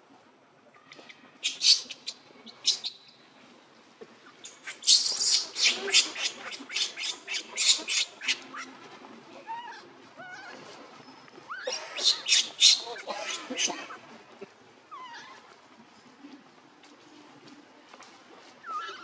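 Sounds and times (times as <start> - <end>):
newborn monkey screeching: 1.4 - 2.0, 4.6 - 8.4, 11.6 - 13.8.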